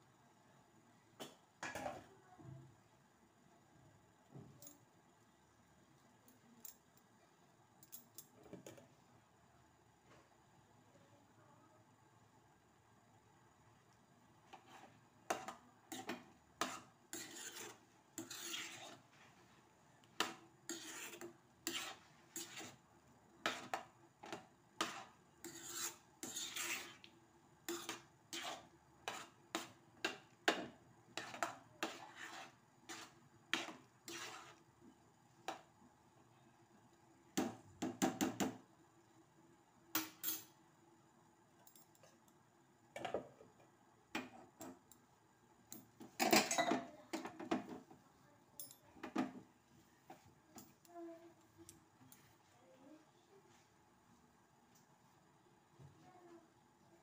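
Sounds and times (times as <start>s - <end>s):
metal spoon scraping steel pot: 14.5s - 19.0s, 20.7s - 22.8s, 24.8s - 27.1s, 31.2s - 34.6s.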